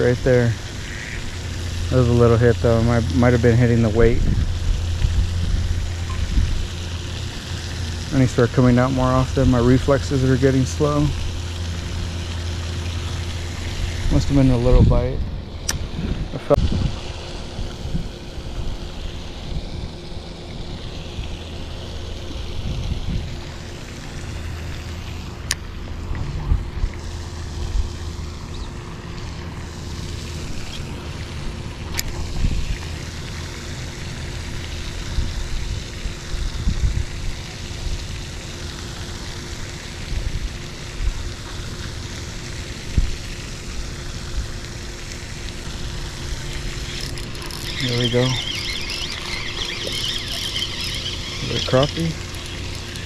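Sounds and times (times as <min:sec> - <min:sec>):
wind buffeting microphone: 0:02.1 - 0:06.8, 0:13.8 - 0:18.8, 0:22.4 - 0:23.4, 0:35.0 - 0:37.4.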